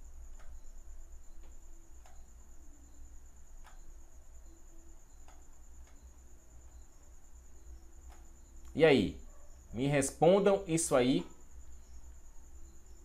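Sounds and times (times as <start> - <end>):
faint clicks: 0.2 - 0.7, 1.3 - 2.4, 3.6 - 4.0, 5.1 - 6.8, 8.0 - 8.8.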